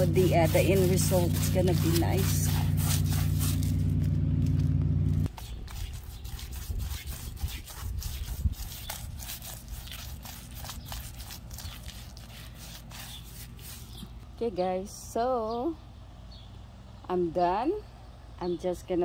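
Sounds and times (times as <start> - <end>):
paintbrush scraping concrete: 0.0 - 4.6, 5.2 - 14.2
loud low hum: 0.0 - 5.3.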